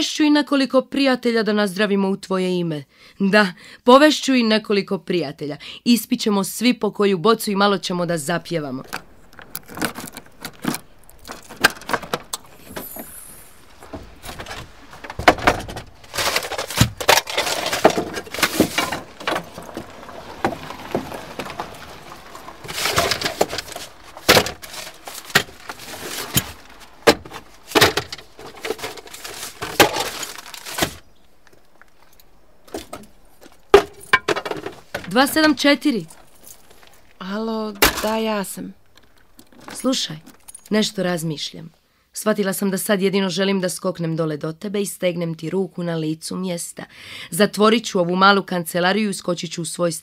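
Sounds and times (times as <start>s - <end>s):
knocks clatters and crashes: 8.8s - 40.7s.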